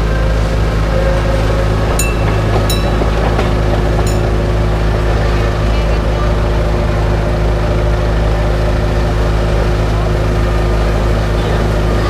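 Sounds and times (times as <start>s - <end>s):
train engine low drone: 0.0s - 12.0s.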